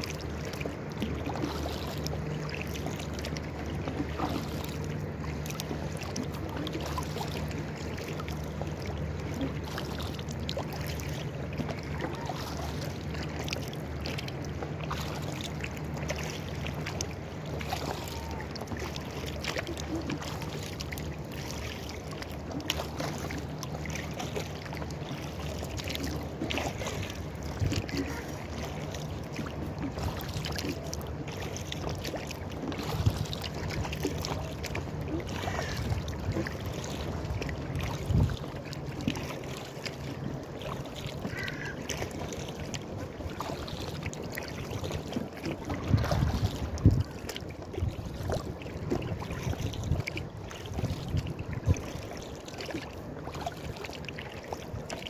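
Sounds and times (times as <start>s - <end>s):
paddle splashing water: 0.0s - 55.0s
water lapping against rubber hull: 0.0s - 55.0s.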